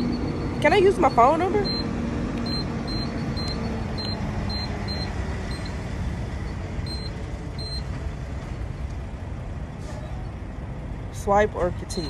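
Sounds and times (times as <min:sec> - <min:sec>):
keypad beeps: 0:00.0 - 0:05.8, 0:06.8 - 0:07.9
engine and traffic rumble: 0:00.0 - 0:12.0.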